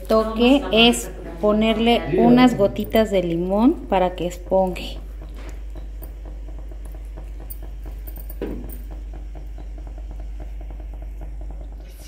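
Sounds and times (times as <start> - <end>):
low steady hum: 0.0 - 12.0
rice bubbling in pot: 3.5 - 12.0.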